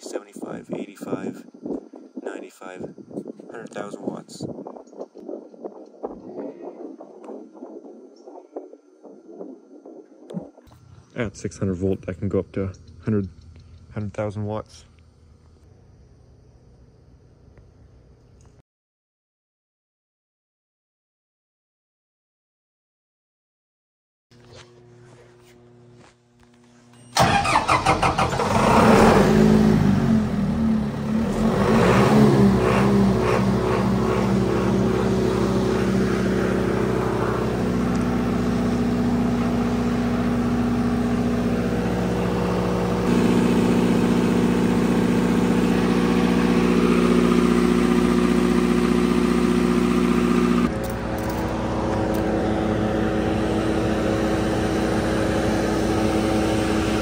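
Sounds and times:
generator engine starting and running: 0:24.4 - 0:57.0.

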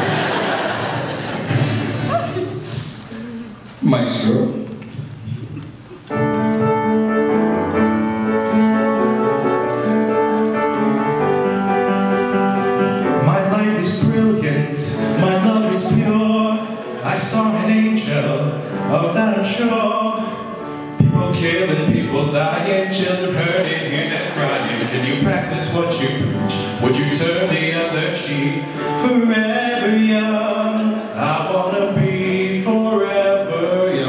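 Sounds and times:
acoustic guitar strumming: 0:01.1 - 0:02.6, 0:06.1 - 0:34.0
upright piano: 0:06.0 - 0:34.0
man singing into microphone: 0:13.1 - 0:34.0.

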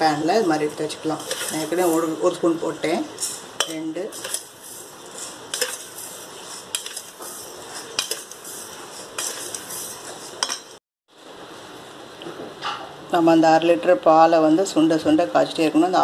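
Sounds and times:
metal spoon scraping a pan: 0:01.0 - 0:02.3, 0:03.2 - 0:10.8.

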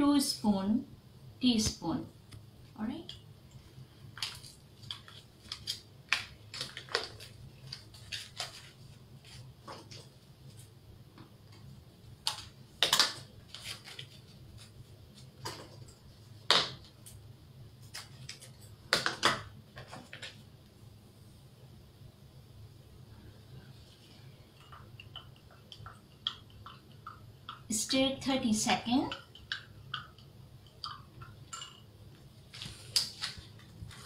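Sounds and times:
paper packet crinkling: 0:04.1 - 0:10.2, 0:12.3 - 0:15.8, 0:32.5 - 0:34.0.

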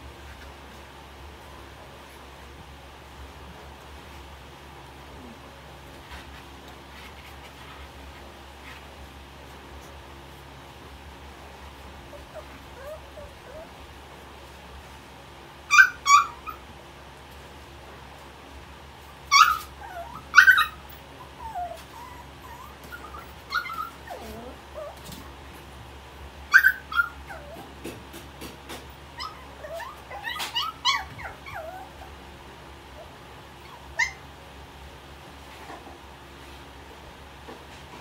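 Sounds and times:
puppy whining: 0:12.0 - 0:14.0, 0:15.7 - 0:16.7, 0:19.1 - 0:25.3, 0:26.5 - 0:28.0, 0:29.1 - 0:32.3, 0:32.9 - 0:34.3
puppy yipping: 0:12.1 - 0:13.8, 0:15.7 - 0:16.7, 0:19.3 - 0:25.1, 0:26.5 - 0:27.7, 0:29.2 - 0:32.1, 0:33.0 - 0:34.2.

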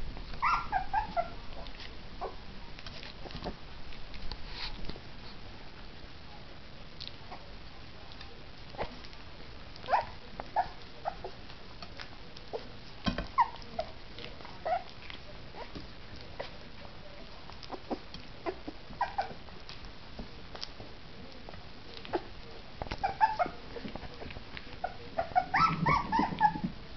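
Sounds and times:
puppies squeaking and whimpering: 0:00.4 - 0:01.4, 0:13.3 - 0:13.7, 0:17.7 - 0:19.4, 0:22.9 - 0:23.9, 0:24.8 - 0:26.7
puppies lapping and smacking: 0:20.6 - 0:26.8.

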